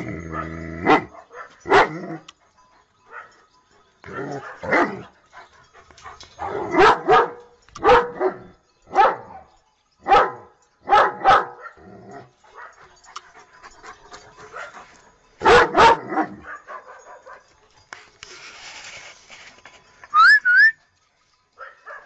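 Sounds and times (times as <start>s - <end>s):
dog barking: 0.3s - 2.0s, 4.4s - 5.0s, 6.4s - 9.3s, 10.1s - 11.8s, 15.4s - 17.5s, 21.6s - 22.0s.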